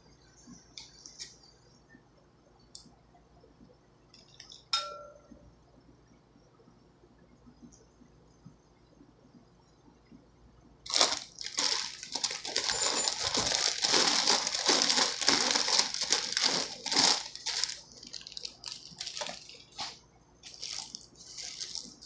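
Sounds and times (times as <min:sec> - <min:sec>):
plastic bag crinkling: 0:10.9 - 0:22.0.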